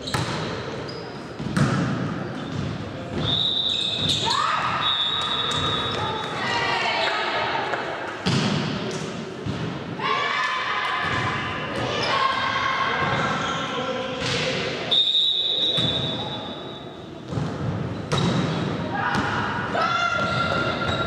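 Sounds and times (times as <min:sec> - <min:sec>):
referee's whistle blast: 0:14.9 - 0:16.8.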